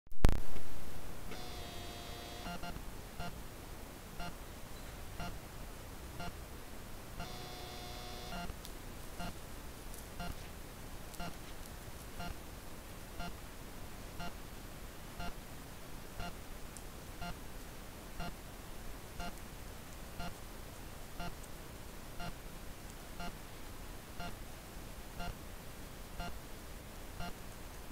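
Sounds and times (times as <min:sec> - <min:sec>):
faint electronic ticking: 0:01.3 - 0:03.4, 0:04.2 - 0:04.4, 0:05.2 - 0:05.4, 0:06.2 - 0:06.4, 0:07.2 - 0:09.4, 0:10.2 - 0:10.5, 0:11.1 - 0:11.4, 0:12.2 - 0:12.4, 0:13.2 - 0:13.4, 0:14.2 - 0:14.4, 0:15.2 - 0:15.4, 0:16.2 - 0:17.4, 0:18.2 - 0:18.4, 0:19.2 - 0:19.4, 0:20.2 - 0:20.5, 0:21.2 - 0:21.6, 0:22.2 - 0:22.4, 0:23.2 - 0:23.4, 0:24.2 - 0:24.4, 0:25.2 - 0:25.4, 0:26.2 - 0:26.4, 0:27.2 - 0:27.9.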